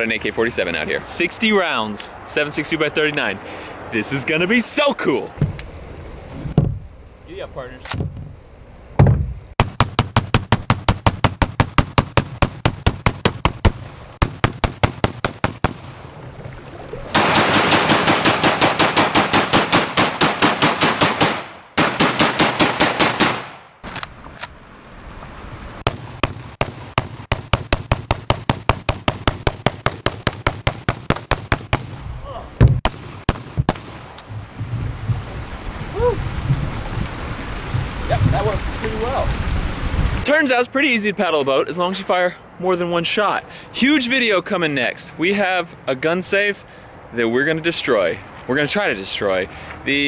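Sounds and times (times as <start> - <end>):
rifle firing rapidly: 17.2 - 23.6.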